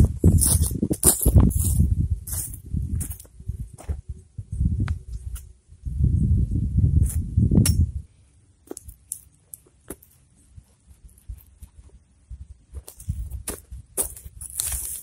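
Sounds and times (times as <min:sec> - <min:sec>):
soil and straw crunching: 0:00.0 - 0:03.3, 0:12.8 - 0:15.0.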